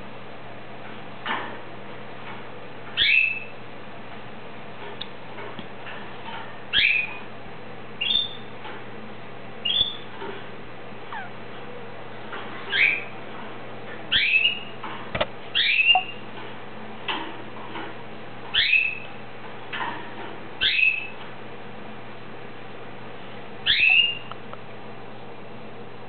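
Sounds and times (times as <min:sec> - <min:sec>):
canary whistling: 0:03.0 - 0:03.5, 0:06.7 - 0:07.2, 0:08.0 - 0:08.5, 0:09.6 - 0:10.1, 0:12.7 - 0:13.1, 0:14.1 - 0:14.7, 0:15.5 - 0:16.2, 0:18.5 - 0:19.1, 0:20.6 - 0:21.2, 0:23.6 - 0:24.3.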